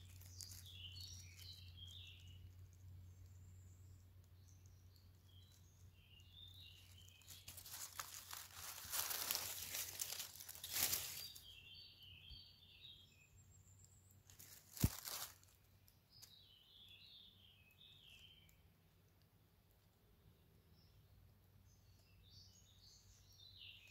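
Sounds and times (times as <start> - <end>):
dry leaves rustling under a hand: 0.0 - 2.9, 5.3 - 11.6, 14.3 - 15.6
small birds chirping: 0.0 - 23.9.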